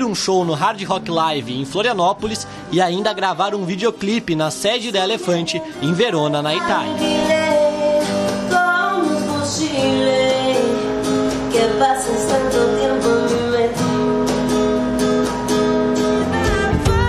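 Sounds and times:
acoustic guitar strumming: 0.0 - 17.0
woman singing: 4.8 - 14.0, 16.2 - 17.0.

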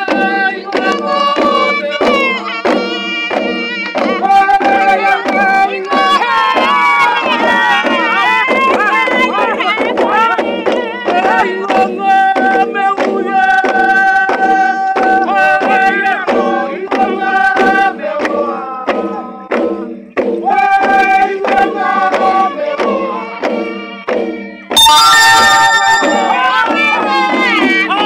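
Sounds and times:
long hand drums beating: 0.0 - 24.7
voices chanting in unison: 20.4 - 23.4.

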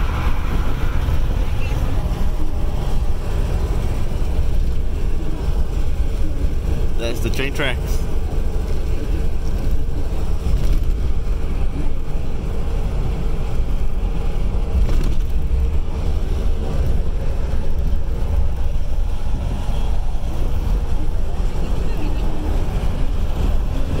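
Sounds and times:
wind noise: 0.0 - 7.0
road rumble inside vehicle: 0.0 - 24.0.

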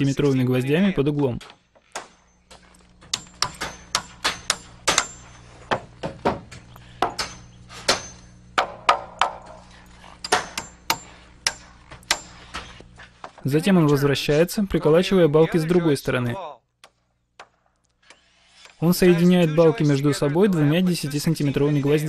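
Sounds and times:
hammer blows on nails: 1.4 - 13.4.

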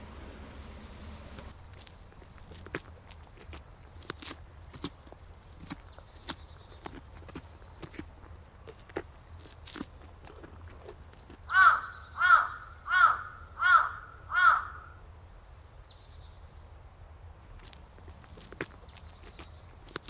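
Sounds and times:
faint high falling songbird trill: 0.0 - 3.3
loud bird calls: 0.0 - 4.8, 9.6 - 16.4.

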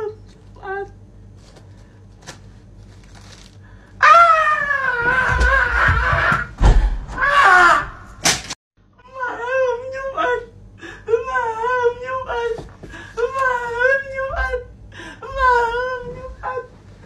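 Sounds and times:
person screaming: 4.0 - 6.5, 7.2 - 8.1
low thumps: 5.2 - 7.2
sharp crash: 6.6 - 7.2.

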